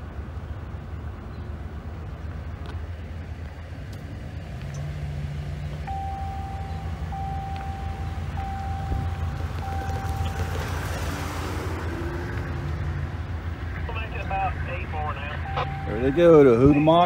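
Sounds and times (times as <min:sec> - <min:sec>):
car engine and road drone: 0:00.0 - 0:17.0
high beep: 0:05.9 - 0:10.6, 0:15.3 - 0:17.0.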